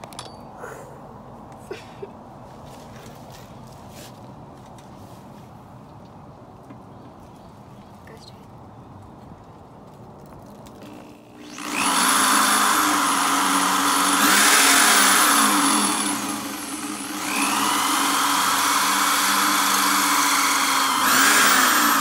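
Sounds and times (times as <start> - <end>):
electric drill drilling: 10.8 - 22.0.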